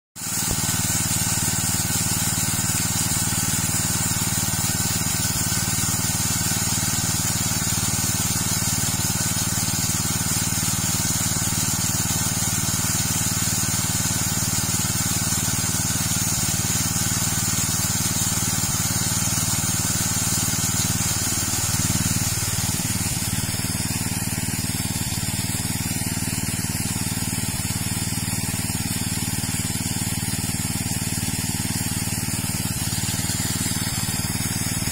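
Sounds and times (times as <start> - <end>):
small petrol engine running: 0.2 - 34.9
water gushing onto ground: 0.2 - 34.9.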